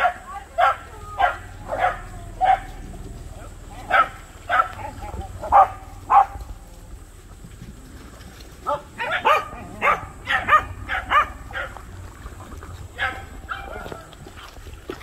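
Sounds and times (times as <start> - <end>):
dog barking: 0.0 - 6.5, 8.6 - 11.8, 13.0 - 14.2.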